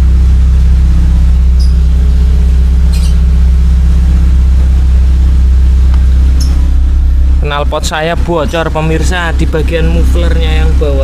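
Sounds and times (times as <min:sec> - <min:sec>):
car engine idling with loud exhaust: 0:00.0 - 0:11.0.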